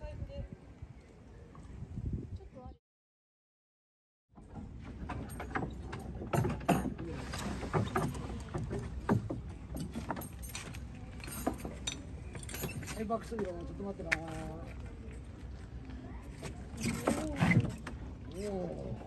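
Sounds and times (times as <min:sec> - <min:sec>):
wooden boat knocking and creaking: 0:04.4 - 0:14.4, 0:16.4 - 0:18.2
footsteps on wooden boards: 0:07.5 - 0:10.3.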